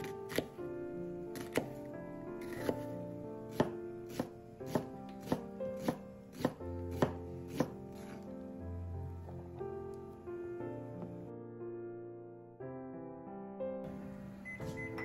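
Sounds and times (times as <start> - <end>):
knife chopping on wooden board: 0.0 - 0.6, 1.4 - 1.8, 2.4 - 2.9, 3.5 - 8.2
background music: 0.0 - 15.0.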